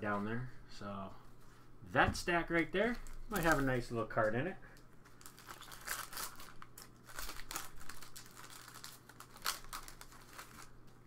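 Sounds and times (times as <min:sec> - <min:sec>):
foil wrapper crinkling: 0:02.8 - 0:03.8, 0:05.0 - 0:11.0.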